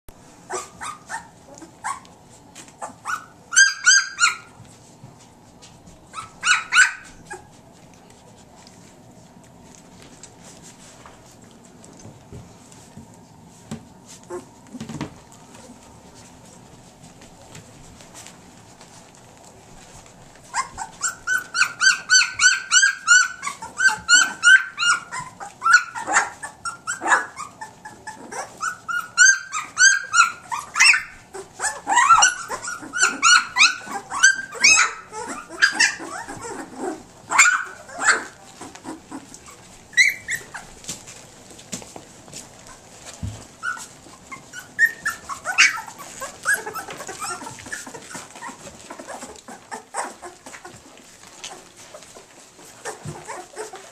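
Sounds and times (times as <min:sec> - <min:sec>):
puppies squealing and whining: 0:00.4 - 0:04.6, 0:06.1 - 0:07.6, 0:14.1 - 0:14.8, 0:20.2 - 0:41.2, 0:42.5 - 0:53.9.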